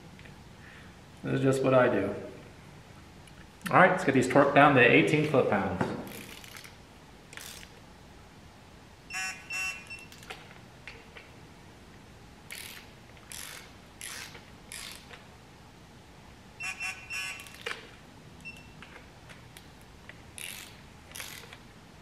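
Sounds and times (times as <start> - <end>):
torque wrench ratchet clicking: 6.1 - 6.7, 7.3 - 7.7, 12.5 - 15.2, 20.4 - 21.6.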